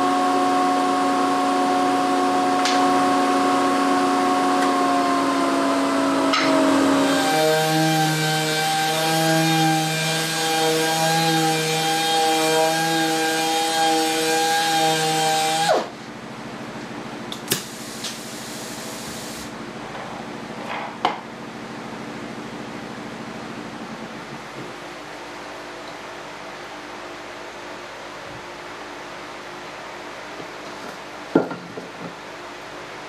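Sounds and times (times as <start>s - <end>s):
orbit sander whining: 0.0s - 15.9s.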